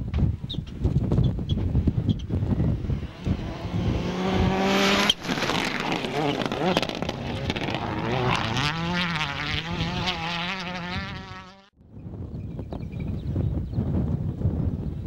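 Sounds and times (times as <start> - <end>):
rally car engine at full throttle: 0.6 - 11.7.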